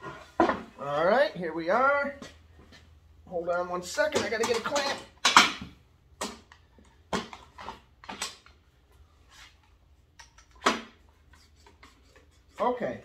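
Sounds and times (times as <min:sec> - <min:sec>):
tools knocking and clattering: 0:04.0 - 0:08.6.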